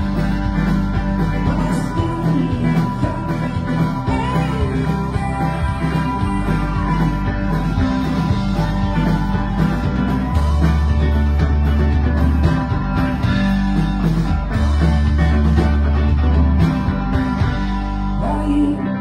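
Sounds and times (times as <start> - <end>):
banjo: 0.0 - 18.2
deep bass notes: 0.0 - 19.0
drum kit: 0.0 - 19.0
electric guitar: 0.0 - 19.0.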